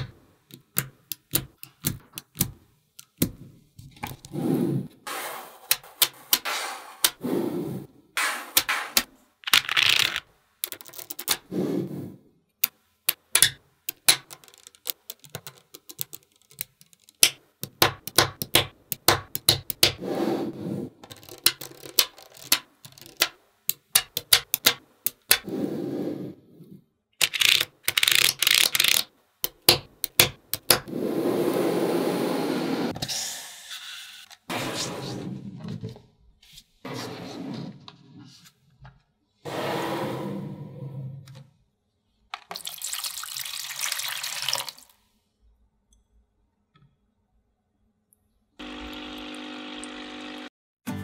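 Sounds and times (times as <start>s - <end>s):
magnetic balls clicking: 12.6s - 20.0s, 21.0s - 25.5s, 27.2s - 30.9s.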